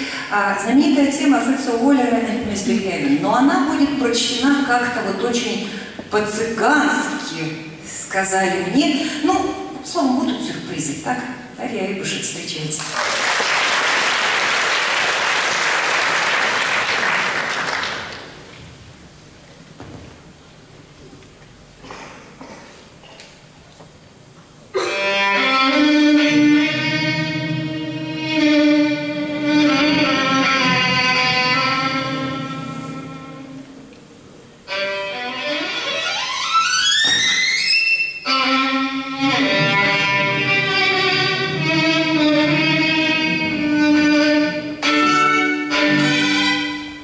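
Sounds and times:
audience applauding: 12.8 - 18.5
violin rising glissando: 34.7 - 46.9.

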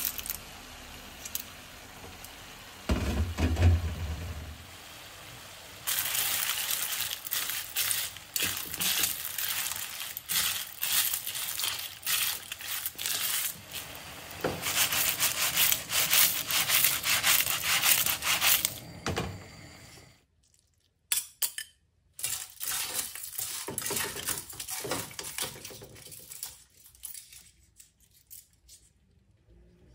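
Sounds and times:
sauce sizzling: 0.0 - 19.8.

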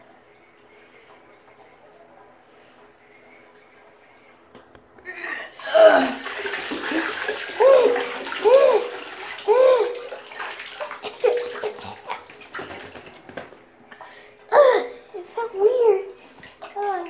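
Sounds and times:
water sloshing in bathtub: 5.5 - 17.0.

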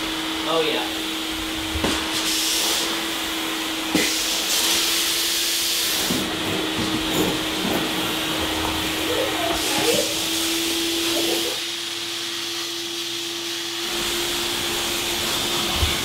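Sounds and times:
vacuum motor hum: 0.0 - 16.0
suction hiss: 0.8 - 6.3.

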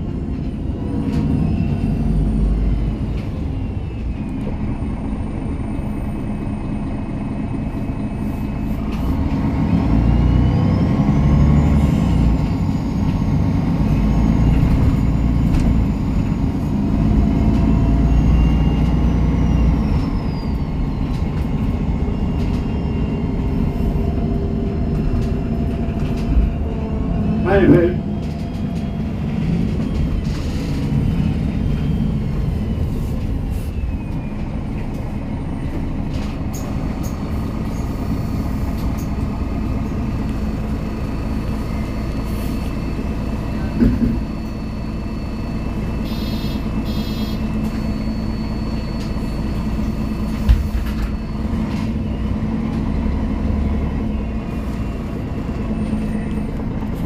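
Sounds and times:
bus diesel engine running: 0.0 - 57.0
road noise: 0.0 - 57.0
high electronic beeping: 46.0 - 50.1.

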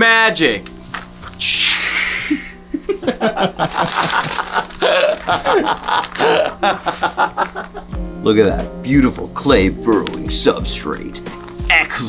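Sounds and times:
men laughing: 1.8 - 8.0.

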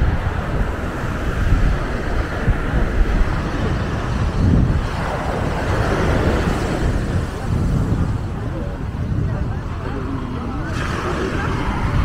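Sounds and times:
surf washing up beach: 0.0 - 12.0
wind buffeting microphone: 0.0 - 12.0.

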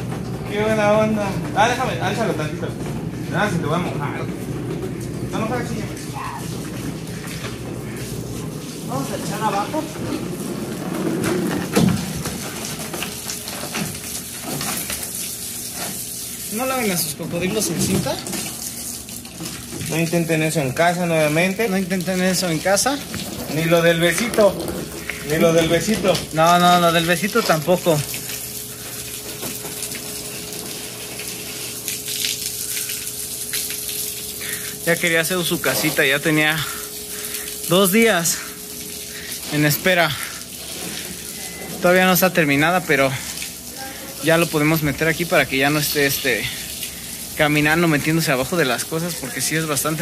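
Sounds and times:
hose water hissing and pattering: 0.0 - 50.0
faint steady hum: 20.4 - 47.6.

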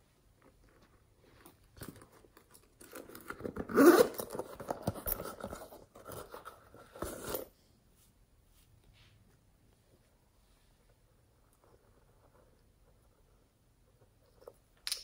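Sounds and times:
pouch rustling: 2.8 - 7.5
zipper being opened: 3.5 - 4.6.

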